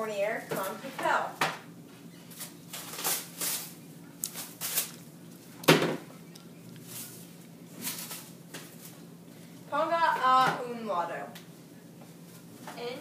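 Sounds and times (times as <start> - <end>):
paper rustling: 2.3 - 5.1.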